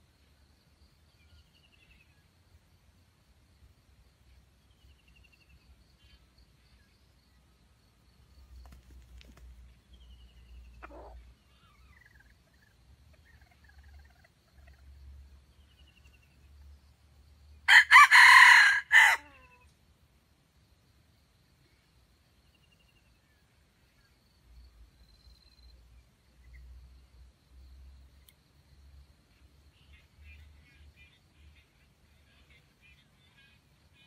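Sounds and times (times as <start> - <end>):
small birds chirping: 8.4 - 17.0
rooster crowing: 17.7 - 19.6.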